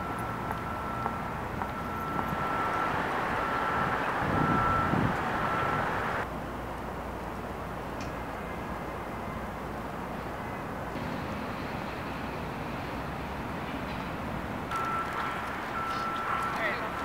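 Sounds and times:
electronic beep: 0.0 - 5.8, 14.7 - 15.2, 15.8 - 17.0
vehicle passing: 0.0 - 6.3
steady outdoor hiss: 0.0 - 17.0.

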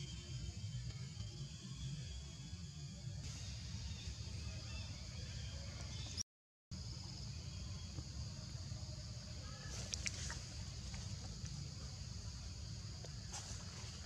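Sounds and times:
high insect drone: 0.0 - 6.0, 6.8 - 14.0.

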